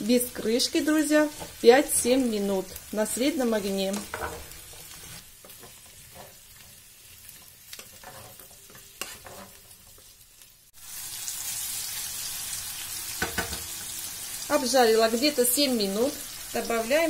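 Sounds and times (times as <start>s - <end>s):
vegetables sizzling in oil: 0.0s - 17.0s
wooden spatula scraping pan: 1.0s - 2.4s, 3.9s - 6.4s, 7.8s - 9.8s.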